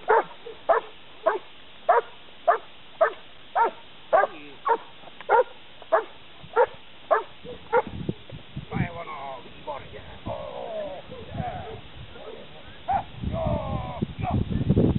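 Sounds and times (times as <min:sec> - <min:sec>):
dog barking: 0:00.0 - 0:07.9, 0:12.2 - 0:13.1.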